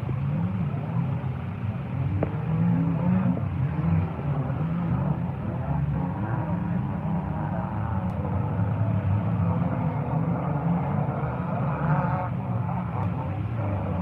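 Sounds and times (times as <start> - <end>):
race car engines droning: 0.0 - 14.0
people talking: 12.1 - 14.0.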